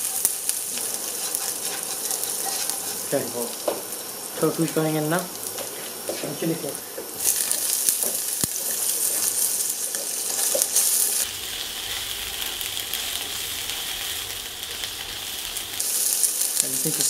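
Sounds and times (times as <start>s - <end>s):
food sizzling in hot oil: 0.0s - 17.0s.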